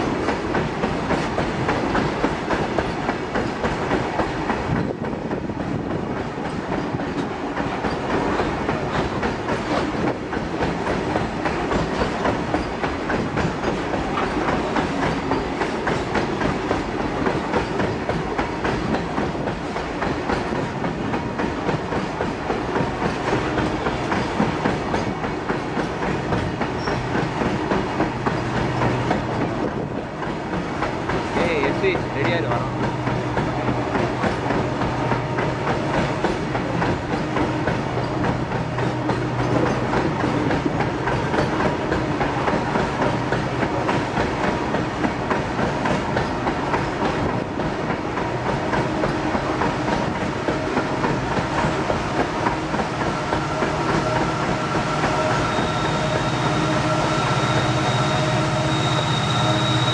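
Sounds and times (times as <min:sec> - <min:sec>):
freight train wheels clattering: 0:00.0 - 0:59.9.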